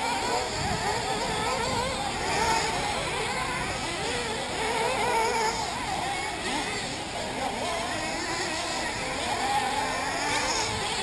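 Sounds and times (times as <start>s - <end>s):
rc buggy engines whining: 0.0s - 11.0s.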